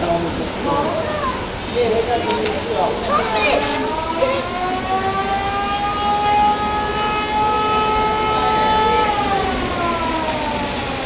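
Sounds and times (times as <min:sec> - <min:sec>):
mechanical siren wailing: 0:02.9 - 0:11.0.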